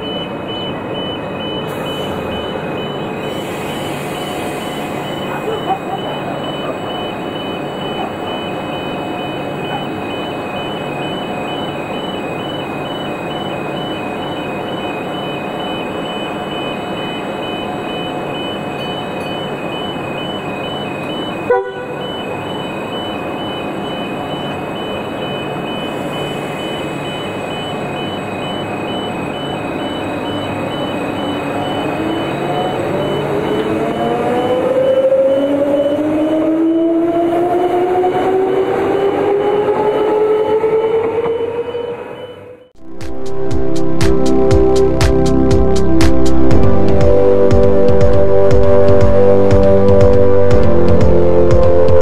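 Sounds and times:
train rumbling past: 0.0s - 52.0s
rising engine note: 31.2s - 52.0s.

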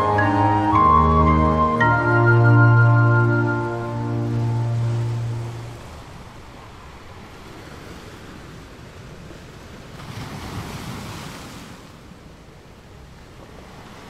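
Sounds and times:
held music chord: 0.0s - 6.1s
ocean waves breaking: 0.0s - 14.0s.

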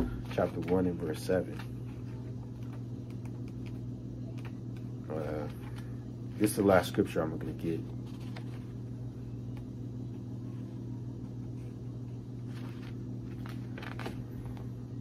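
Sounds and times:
low room hum: 0.0s - 15.0s
pages rustling: 0.3s - 5.9s, 7.8s - 8.8s, 12.4s - 14.8s.

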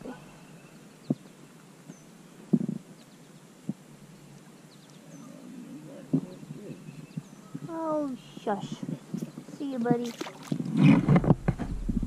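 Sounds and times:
faint high chirps: 3.0s - 8.4s.

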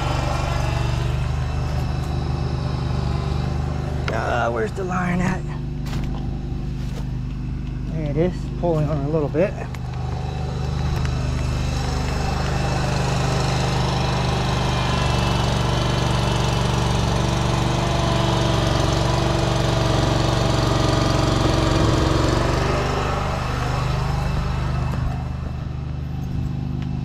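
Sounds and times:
wavering high whine: 0.0s - 6.7s
engine running: 0.0s - 27.0s.

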